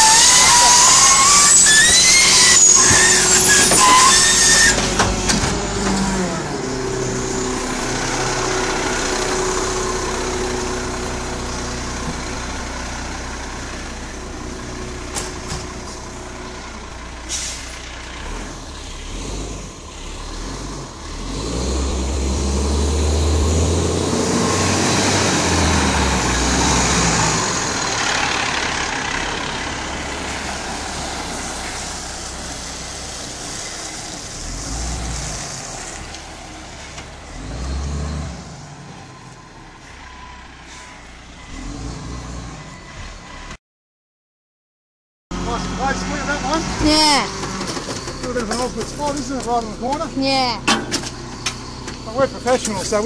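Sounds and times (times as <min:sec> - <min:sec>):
garbage truck engine revving: 0:00.0 - 0:39.2, 0:45.3 - 0:53.0
air brake hiss: 0:17.2 - 0:17.8.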